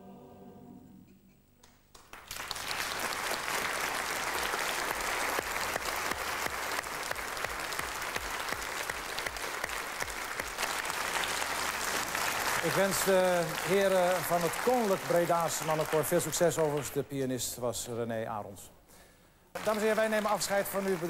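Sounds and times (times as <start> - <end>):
audience applause: 1.9 - 17.0, 19.6 - 21.0.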